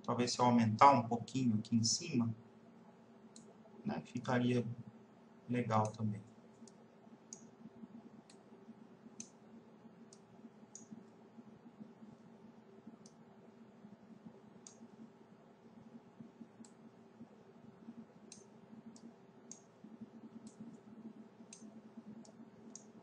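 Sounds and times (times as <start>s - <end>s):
low steady hum: 0.0s - 23.0s
computer mouse clicks: 3.3s - 3.6s, 5.8s - 8.5s, 9.2s - 9.4s, 10.1s - 11.2s, 13.0s - 13.2s, 14.6s - 15.0s, 16.6s - 16.9s, 18.1s - 23.0s.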